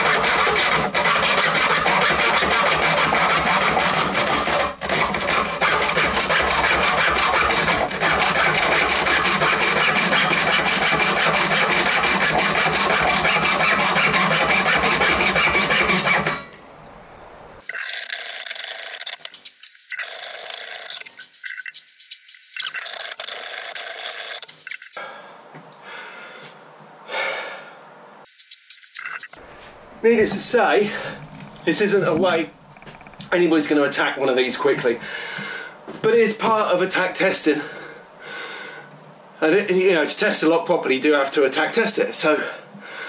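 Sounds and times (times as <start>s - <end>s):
hacksaw sawing through strap lock: 0.0s - 16.4s.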